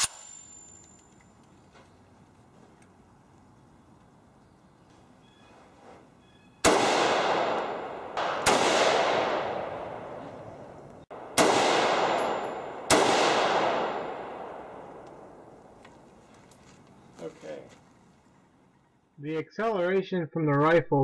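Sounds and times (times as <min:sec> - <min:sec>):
handgun shots with echo: 0:06.6 - 0:10.2, 0:11.1 - 0:15.2.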